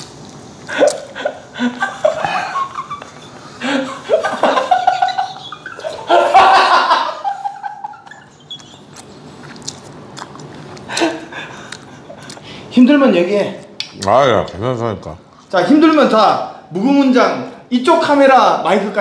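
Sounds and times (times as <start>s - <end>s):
man laughing hard: 0.7s - 8.3s
chewing noodles: 8.4s - 12.5s.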